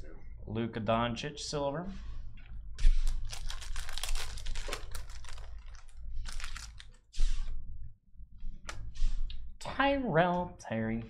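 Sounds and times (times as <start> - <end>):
cards rustling: 3.0 - 7.0
foil wrapper crinkling: 3.0 - 7.0.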